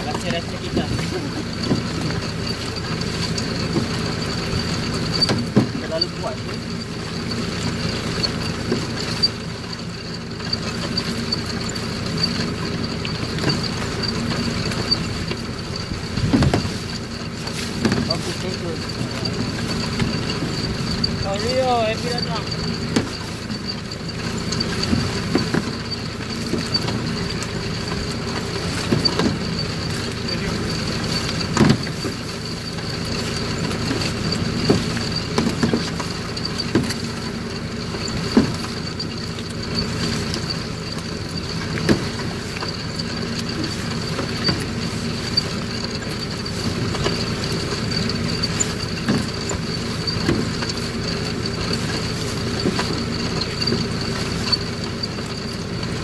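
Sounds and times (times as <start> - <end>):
engine humming: 0.0 - 56.0.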